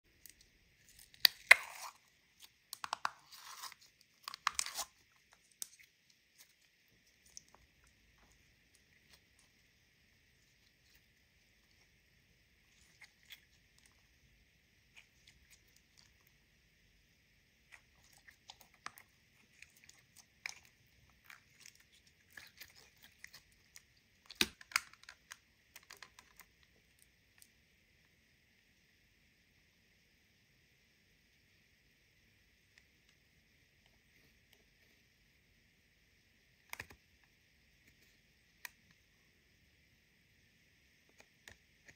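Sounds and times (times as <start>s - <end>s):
slime popping and crackling: 0.2s - 7.9s, 17.6s - 26.4s.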